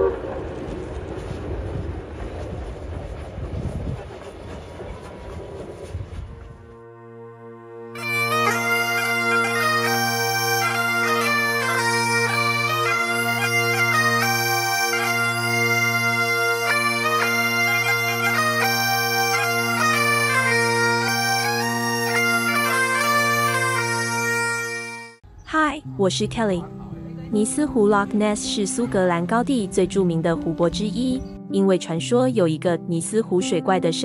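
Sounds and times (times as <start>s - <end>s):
bagpipes playing a lively melody: 6.9s - 25.2s.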